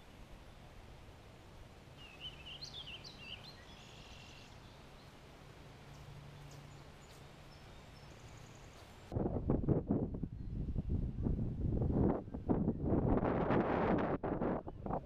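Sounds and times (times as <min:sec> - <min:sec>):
songbird warbling: 0:02.0 - 0:04.8
faint bird chirps: 0:02.0 - 0:05.1.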